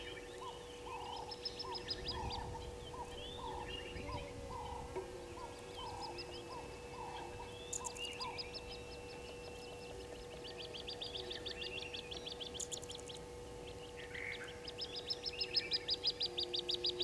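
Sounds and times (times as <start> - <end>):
bird repeating low note: 0.0 - 17.0.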